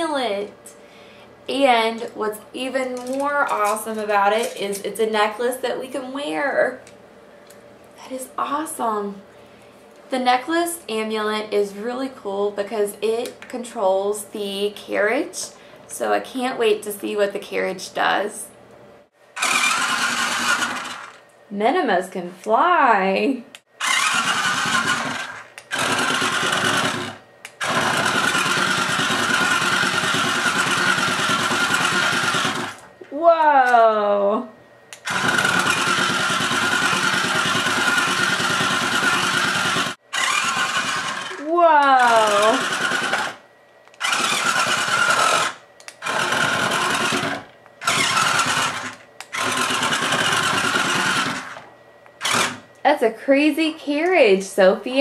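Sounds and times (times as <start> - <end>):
toy electric motor whirring: 19.4 - 21.2, 23.8 - 32.9, 35.0 - 43.4, 44.0 - 51.6, 52.2 - 52.6.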